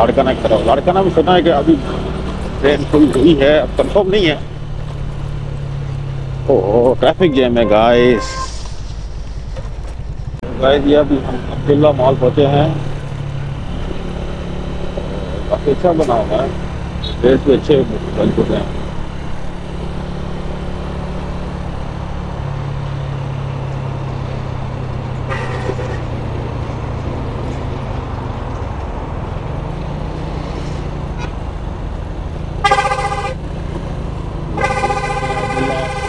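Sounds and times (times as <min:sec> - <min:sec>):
wind and road noise: 0:00.0 - 0:36.0
vehicle horn: 0:07.0 - 0:08.7, 0:17.0 - 0:17.4, 0:25.3 - 0:26.0, 0:32.6 - 0:33.4, 0:34.6 - 0:36.0.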